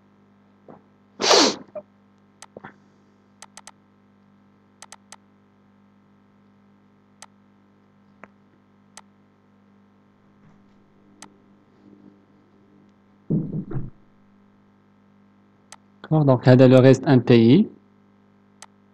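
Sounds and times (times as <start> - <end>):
low electrical hum: 0.0 - 18.9
computer mouse clicks: 3.4 - 3.8, 4.8 - 5.2.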